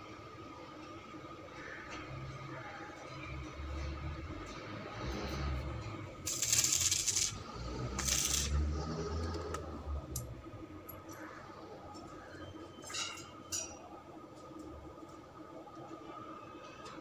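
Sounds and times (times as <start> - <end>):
hissing bursts: 6.3 - 8.6.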